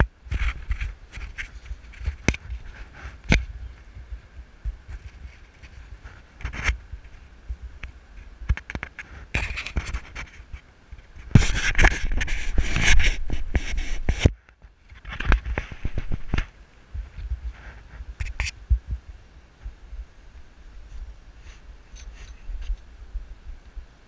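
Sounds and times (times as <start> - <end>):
sharp clicks and knocks: 7.8 - 10.3.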